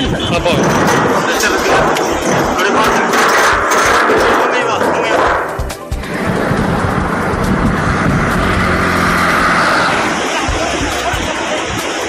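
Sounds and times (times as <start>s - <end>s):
highway traffic: 0.0s - 12.0s
vehicle passing: 5.8s - 11.1s.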